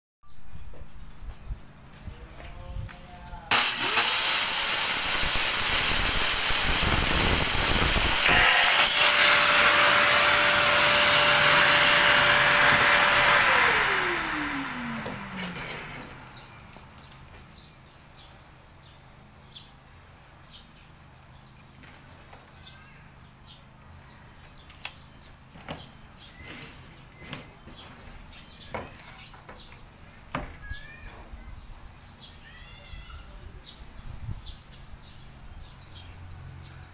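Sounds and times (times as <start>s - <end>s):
circular saw cutting wood: 3.5s - 16.5s
dust extractor rushing: 3.5s - 16.6s.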